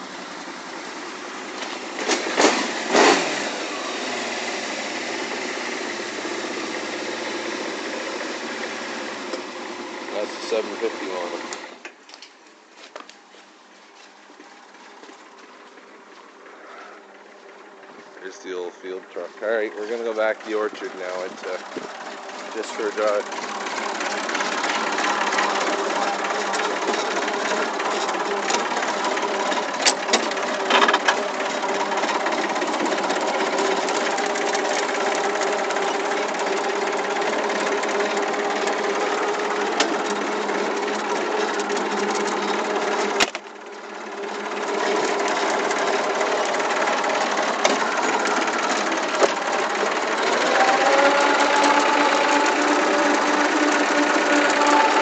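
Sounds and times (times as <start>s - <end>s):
tractor engine running: 0.0s - 11.8s, 14.3s - 55.0s.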